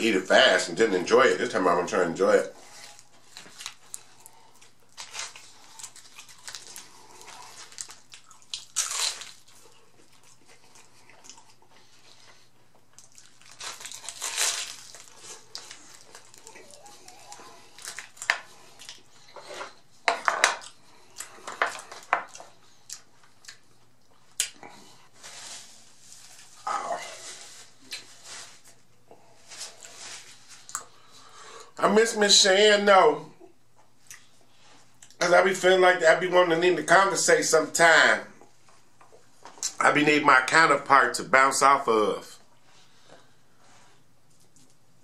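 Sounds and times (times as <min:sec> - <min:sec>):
taco shell crunching: 0:02.6 - 0:11.9, 0:12.9 - 0:19.1
chewing: 0:02.8 - 0:19.6.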